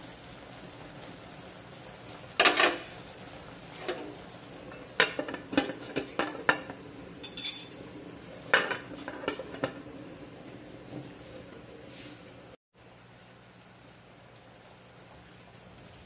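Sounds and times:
metal pot lid clinking on pan: 4.8s - 7.8s.

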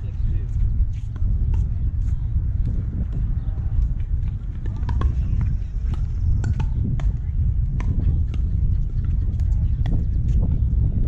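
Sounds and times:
wind buffeting microphone: 0.0s - 11.0s
paddles striking balls: 3.8s - 10.0s.

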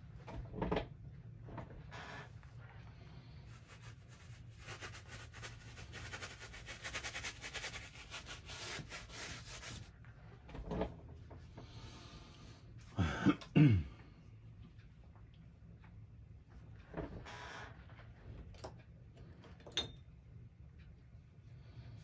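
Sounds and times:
brush scrubbing on canvas: 3.2s - 10.0s
man coughing: 12.9s - 14.0s.

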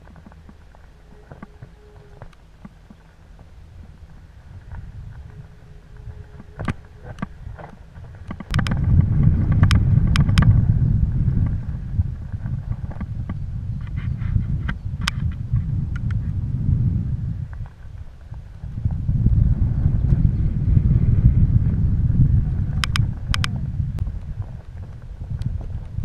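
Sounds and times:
bike rattling over stones: 0.0s - 13.4s
low rumble: 0.0s - 26.0s
wind buffeting microphone: 0.0s - 26.0s.

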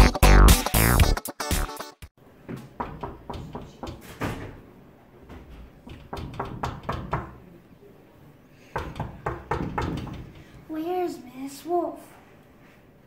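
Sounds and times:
knocking on wooden door: 2.5s - 4.6s, 5.8s - 7.4s, 8.8s - 10.4s.

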